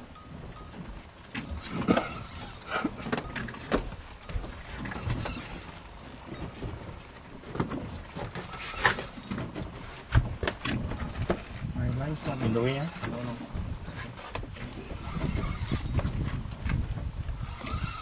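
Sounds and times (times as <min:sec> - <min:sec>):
irregular knocks and clicks: 0:02.9 - 0:11.6
spinning reel winding: 0:15.0 - 0:16.0, 0:17.4 - 0:18.0.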